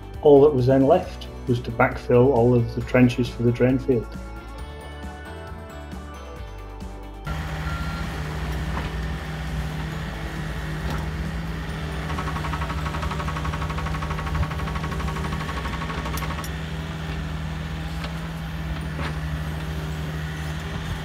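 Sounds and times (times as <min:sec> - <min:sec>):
excavator diesel engine running: 0:06.8 - 0:21.0.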